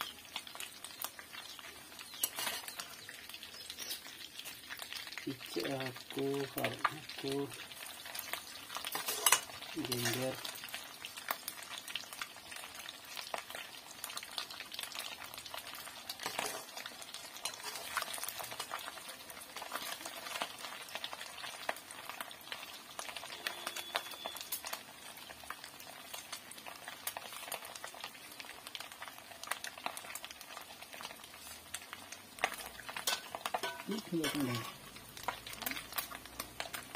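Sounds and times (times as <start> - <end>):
food sizzling in oil: 0.0 - 36.9
metal spoon scraping pan: 2.2 - 2.8, 8.8 - 10.2, 16.2 - 16.8, 17.4 - 18.4, 32.6 - 34.9.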